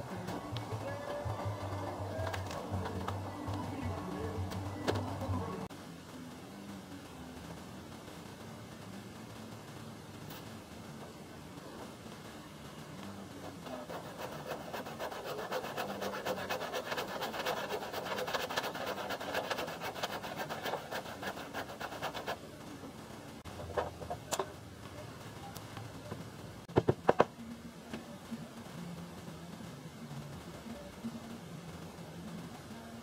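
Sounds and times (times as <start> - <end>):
hand saw cutting wood: 13.8 - 22.4.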